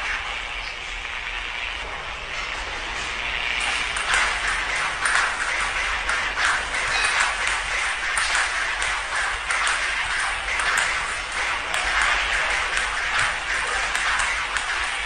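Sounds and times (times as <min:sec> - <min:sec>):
steady hiss: 0:00.0 - 0:15.0
table tennis ball clicks: 0:03.6 - 0:15.0.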